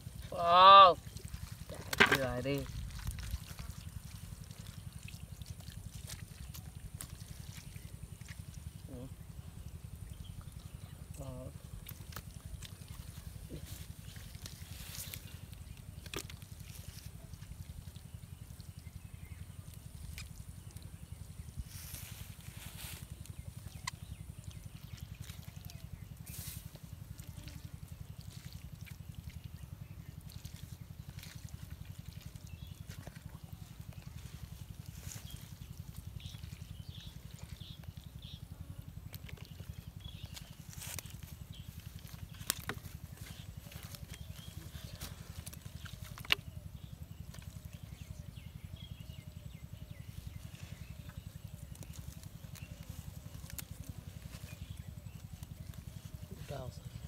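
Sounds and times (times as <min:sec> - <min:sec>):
low pulsing hum: 0:00.0 - 0:57.0
wet rustling of net: 0:01.0 - 0:08.8, 0:11.7 - 0:18.8, 0:39.0 - 0:48.1, 0:50.2 - 0:57.0.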